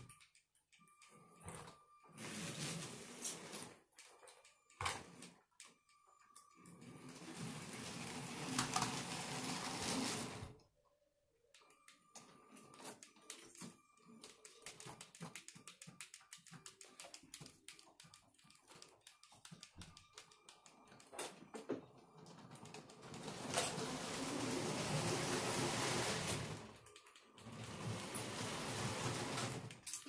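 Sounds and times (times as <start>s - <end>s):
toy train clicking on plastic track: 7.2s - 10.4s, 22.6s - 30.0s.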